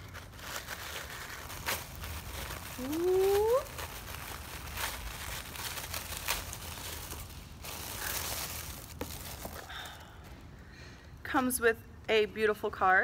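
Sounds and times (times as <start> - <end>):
paper wrapping crinkling: 0.0 - 10.1.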